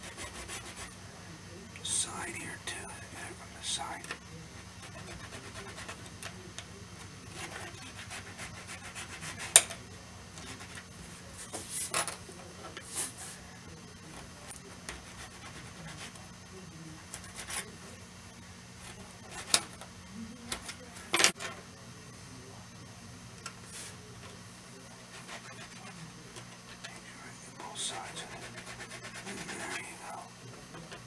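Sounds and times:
file scraping plastic: 0:00.0 - 0:00.9, 0:04.8 - 0:06.4, 0:07.3 - 0:09.8, 0:14.2 - 0:16.2, 0:28.1 - 0:29.9.

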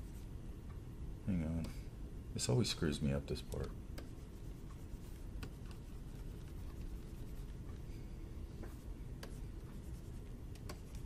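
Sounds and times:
low room hum: 0:00.0 - 0:11.0
computer mouse clicking: 0:10.5 - 0:11.0.

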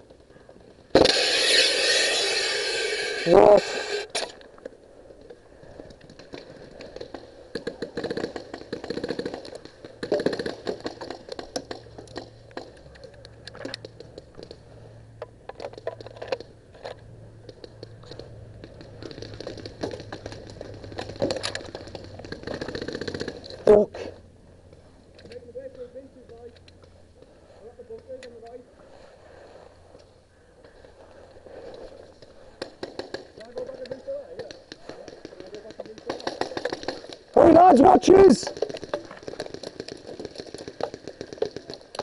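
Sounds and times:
sharp clicks and cracks: 0:15.2 - 0:23.6, 0:31.7 - 0:37.4, 0:38.1 - 0:42.0.

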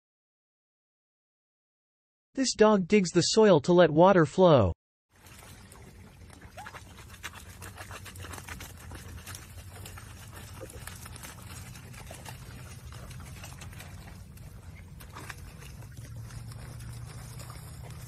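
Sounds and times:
dog splashing in water: 0:05.1 - 0:18.0
wet scratches: 0:06.4 - 0:18.0.

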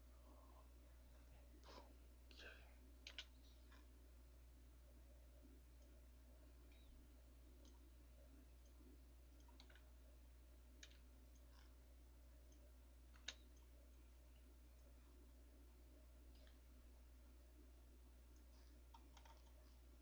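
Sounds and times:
low steady hum: 0:00.0 - 0:20.0
computer mouse clicks: 0:03.0 - 0:03.9, 0:07.6 - 0:07.8, 0:08.6 - 0:09.9, 0:10.8 - 0:11.8, 0:12.4 - 0:13.8, 0:16.3 - 0:16.6, 0:18.3 - 0:19.8.

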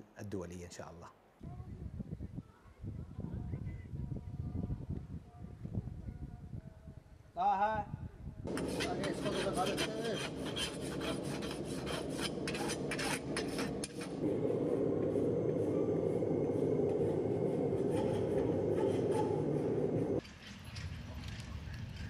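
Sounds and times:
rasp scraping hoof: 0:08.5 - 0:14.2.

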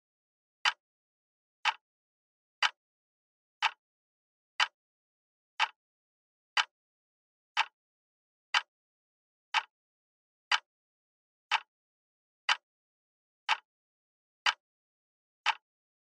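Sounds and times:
clock ticking: 0:01.6 - 0:01.8, 0:02.6 - 0:02.8, 0:03.6 - 0:03.8, 0:05.6 - 0:05.8, 0:06.6 - 0:06.8, 0:07.6 - 0:07.8, 0:08.5 - 0:08.7, 0:09.5 - 0:09.7, 0:11.5 - 0:11.7, 0:12.5 - 0:12.7, 0:13.5 - 0:13.7, 0:15.4 - 0:15.6.

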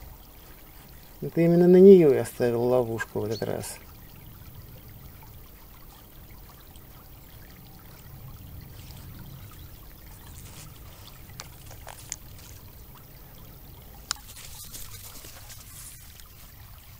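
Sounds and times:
flowing river water: 0:00.0 - 0:16.9
brief rustling: 0:10.1 - 0:12.7, 0:14.0 - 0:16.6.

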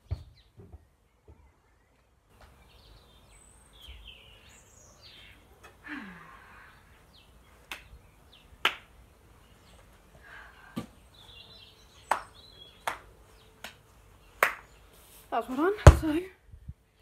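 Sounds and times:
football kicked and bouncing: 0:00.0 - 0:00.8, 0:15.8 - 0:16.2
birds chirping faintly: 0:00.0 - 0:17.0.

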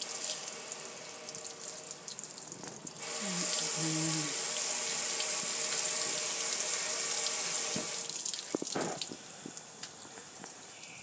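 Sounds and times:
water drips and ticks: 0:00.0 - 0:03.0, 0:07.8 - 0:11.0.

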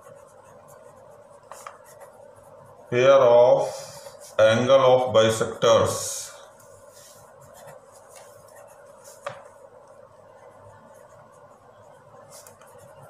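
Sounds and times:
pen scratching on paper: 0:00.0 - 0:02.9, 0:07.0 - 0:09.6, 0:10.4 - 0:13.0
steady background hum: 0:00.0 - 0:13.0.

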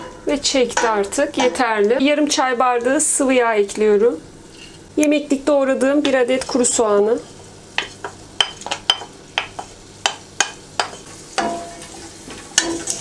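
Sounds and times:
wooden spoon knocking on pot: 0:00.0 - 0:01.9, 0:07.8 - 0:11.8
meat and onion sizzling in oil: 0:00.0 - 0:13.0.

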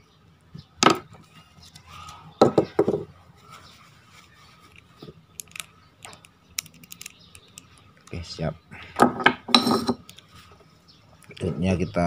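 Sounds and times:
rubbing with tissue: 0:03.4 - 0:05.0.

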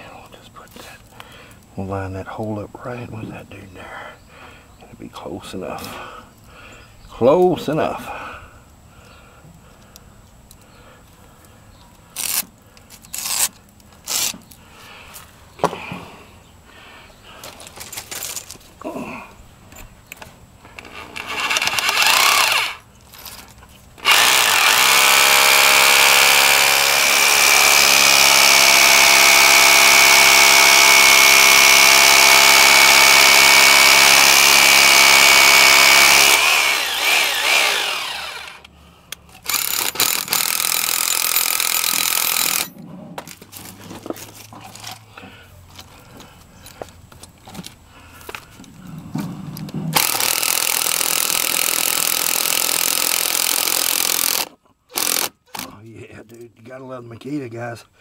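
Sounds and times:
rotary hammer drilling into concrete: 0:12.2 - 0:14.4, 0:20.8 - 0:22.8, 0:24.0 - 0:38.7, 0:39.4 - 0:42.7, 0:50.0 - 0:55.7.

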